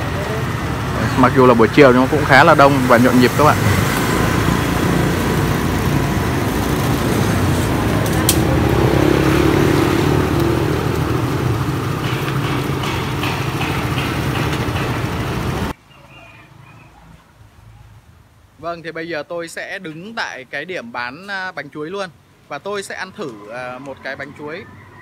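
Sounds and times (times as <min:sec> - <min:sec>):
people talking: 0:00.0 - 0:03.6, 0:15.9 - 0:17.1, 0:18.6 - 0:24.7
scooter engines passing: 0:00.0 - 0:17.3, 0:22.8 - 0:25.0.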